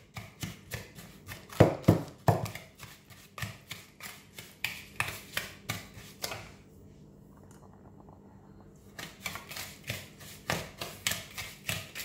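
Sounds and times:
spatula scraping a mixing bowl: 8.9s - 12.0s.

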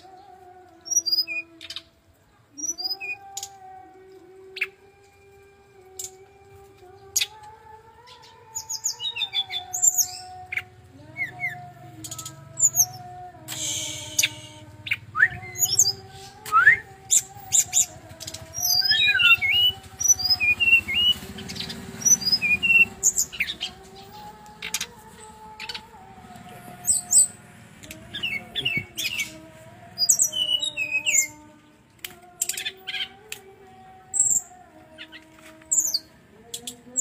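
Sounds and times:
bird singing chirps and whistles: 0.8s - 1.9s, 2.6s - 3.6s, 8.2s - 24.9s, 28.1s - 29.4s, 30.0s - 31.4s, 34.1s - 36.1s
steady low hum: 10.8s - 32.0s.

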